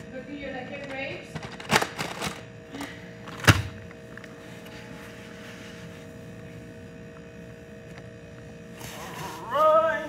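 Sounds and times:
faint electrical hum: 0.0s - 10.0s.

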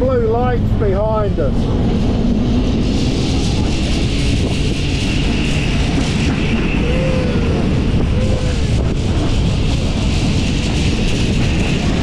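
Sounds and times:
steady high whine: 0.0s - 12.0s
tram rumbling on track: 0.0s - 12.0s
wind buffeting microphone: 0.0s - 12.0s.

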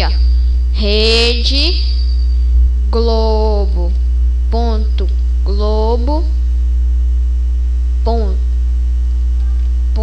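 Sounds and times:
person speaking: 0.0s - 2.1s, 2.9s - 6.4s, 8.0s - 8.6s
electrical mains hum: 0.0s - 10.0s.

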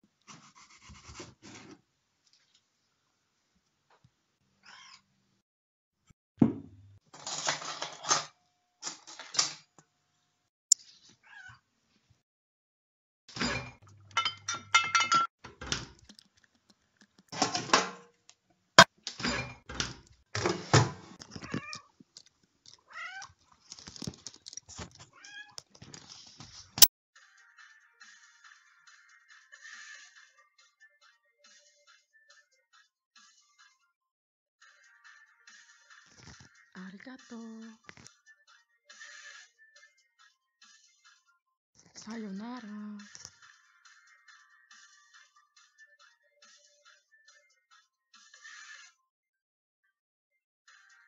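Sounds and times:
cat meowing: 22.9s - 23.3s.

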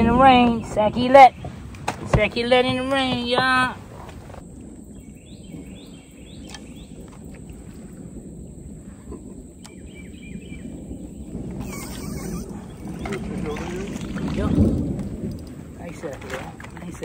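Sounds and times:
bird calling rising notes: 9.7s - 13.6s.

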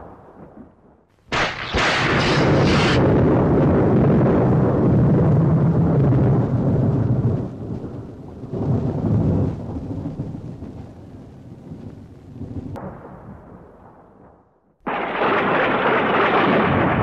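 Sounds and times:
rolling thunder: 0.0s - 17.0s.

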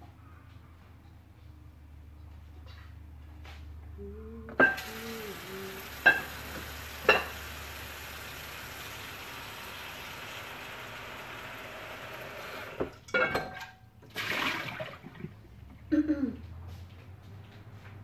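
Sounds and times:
gas burner hissing: 4.6s - 12.9s.

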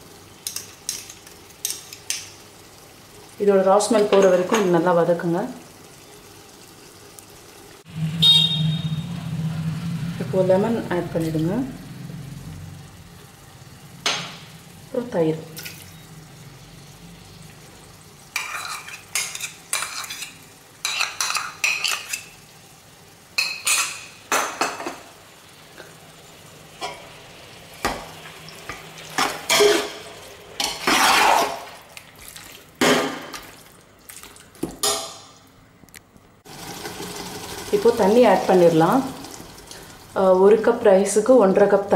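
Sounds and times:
metal ladle scraping a metal pot: 18.4s - 22.2s, 29.2s - 30.0s, 30.6s - 31.6s.

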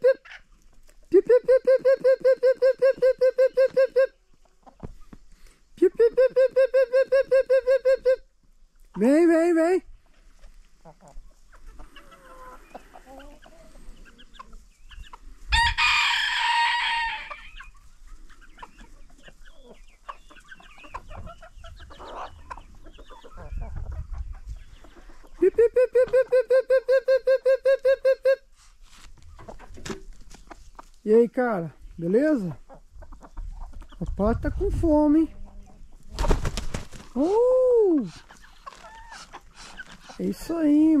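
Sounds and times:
chickens clucking: 0.0s - 41.0s
rooster crowing: 15.5s - 17.5s.

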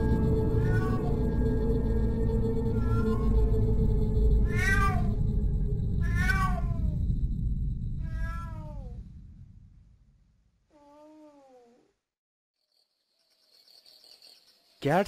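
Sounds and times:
low background rumble: 0.0s - 10.6s
kitten meowing: 0.6s - 1.2s, 2.7s - 3.5s, 4.4s - 5.2s, 6.0s - 7.0s, 8.0s - 9.0s.

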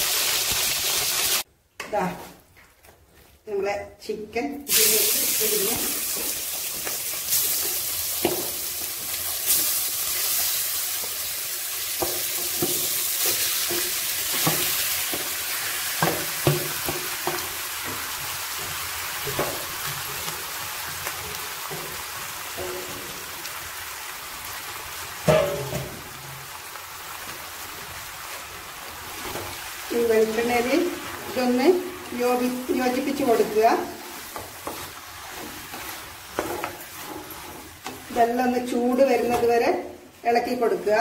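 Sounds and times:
chicken sizzling in oil: 0.0s - 1.5s, 4.7s - 39.2s
spatula scraping pan: 30.2s - 39.5s.

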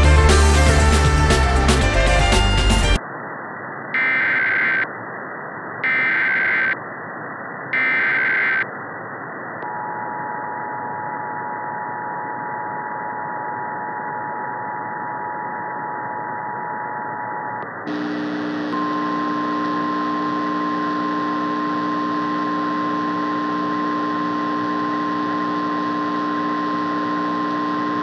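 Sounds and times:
radio static hiss: 1.7s - 9.6s, 17.6s - 28.0s
harsh buzzing data bursts: 4.0s - 4.9s, 5.8s - 6.8s, 7.7s - 8.7s, 17.9s - 28.0s
two-tone attention signal: 18.7s - 28.0s.

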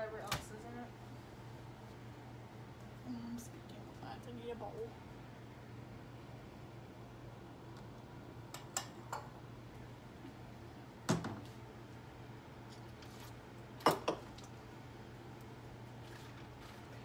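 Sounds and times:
steady low hum: 0.0s - 17.0s
dishes clattering: 13.8s - 14.3s.

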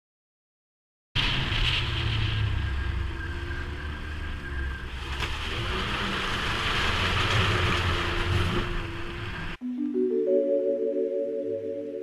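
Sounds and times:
snowmobile track noise: 1.2s - 9.6s
wind: 1.2s - 12.0s.

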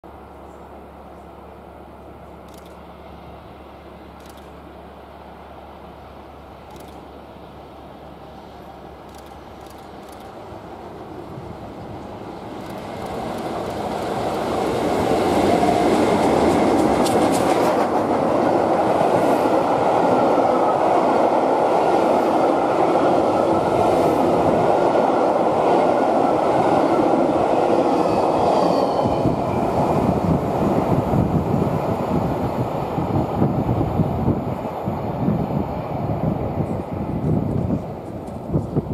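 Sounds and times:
diesel train passing: 0.0s - 38.9s
wheels rumbling on rail: 0.1s - 38.9s
sharp clicks: 2.5s - 2.9s, 4.2s - 4.6s, 6.7s - 7.1s, 9.1s - 10.4s.

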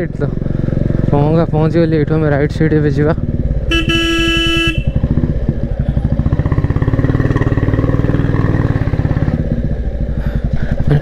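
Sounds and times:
motorcycle engine thumping: 3.1s - 11.0s.

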